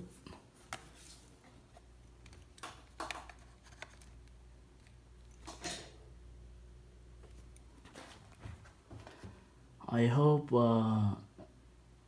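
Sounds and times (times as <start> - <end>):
low steady hum: 0.0 - 12.0
small device handling noises: 0.6 - 5.9, 7.2 - 9.2.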